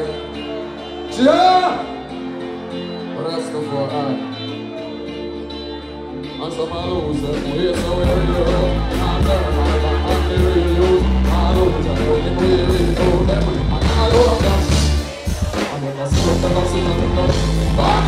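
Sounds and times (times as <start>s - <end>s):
live band music: 0.0s - 18.0s
person singing into microphone: 6.2s - 18.0s
heavy bass line: 6.8s - 18.0s
steady drum beat: 7.7s - 18.0s.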